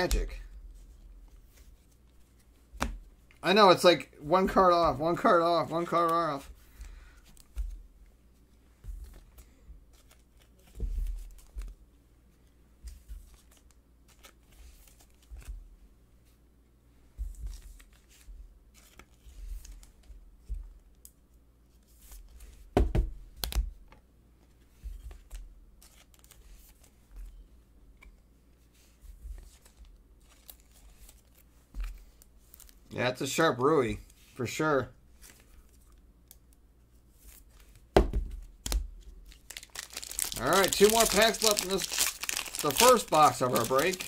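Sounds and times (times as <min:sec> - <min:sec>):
card handling rustles and clicks: 0:04.4 - 0:07.8, 0:08.4 - 0:11.8, 0:12.4 - 0:15.6, 0:23.4 - 0:27.4, 0:28.0 - 0:32.8, 0:35.2 - 0:44.0.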